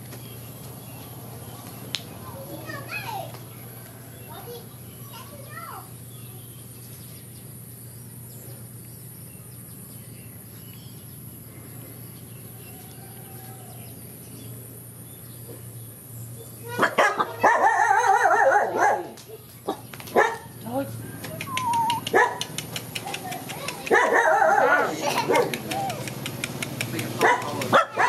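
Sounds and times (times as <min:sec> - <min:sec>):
dog barking: 0:16.8 - 0:20.5, 0:21.7 - 0:22.5, 0:23.9 - 0:26.0, 0:27.2 - 0:28.0.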